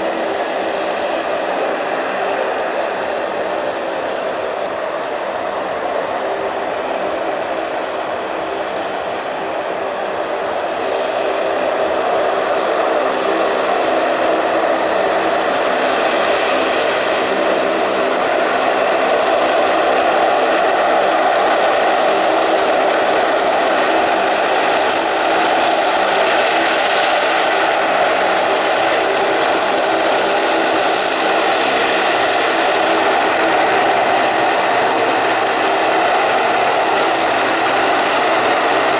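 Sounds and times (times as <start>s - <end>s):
high turbine whine: 0.0s - 38.9s
propeller drone: 0.0s - 38.9s.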